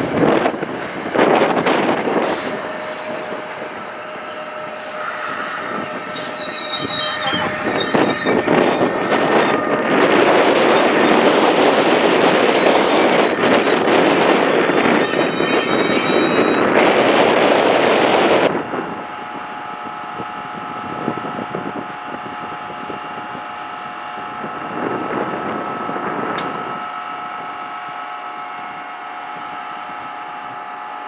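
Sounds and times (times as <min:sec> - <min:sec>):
locomotive electrical whine: 0:00.0 - 0:31.0
train wheel and rail noise: 0:00.0 - 0:31.0
high-pitched wheel squeal: 0:02.2 - 0:09.8, 0:12.4 - 0:16.8
sharp click: 0:26.4 - 0:26.6.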